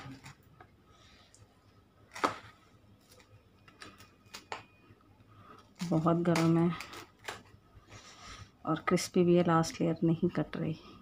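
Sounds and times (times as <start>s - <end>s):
knife cutting crisp bread crust: 2.1s - 4.8s.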